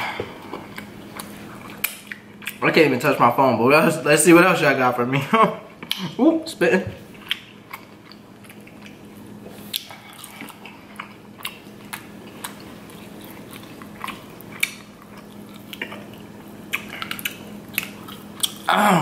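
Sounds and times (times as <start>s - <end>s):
faint steady hum: 0.0s - 19.0s
chewing: 0.4s - 2.6s, 7.1s - 18.7s.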